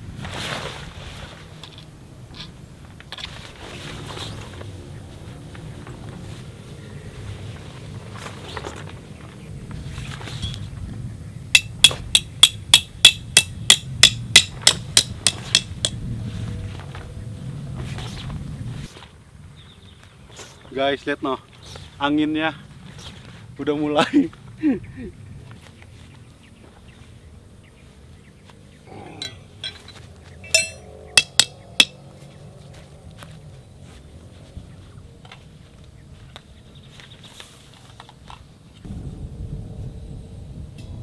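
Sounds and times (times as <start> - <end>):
scraping rustle: 0.0 - 6.6
hammer striking metal tent stake: 11.6 - 16.0, 29.2 - 32.0.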